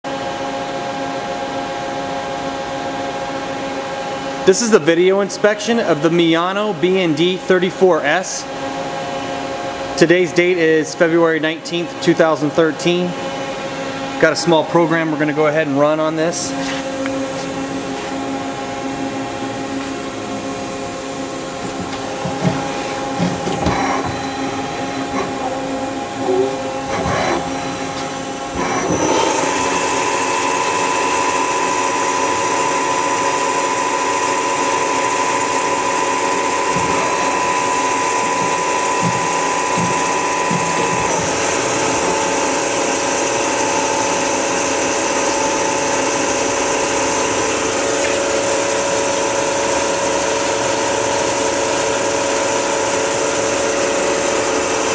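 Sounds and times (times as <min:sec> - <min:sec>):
machine spindle whine with hiss: 0:15.2 - 0:54.9.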